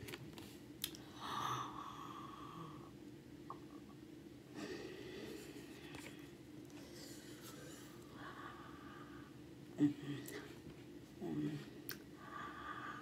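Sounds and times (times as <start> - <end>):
woman breathing: 1.0 - 3.0, 4.5 - 10.6, 11.4 - 13.0.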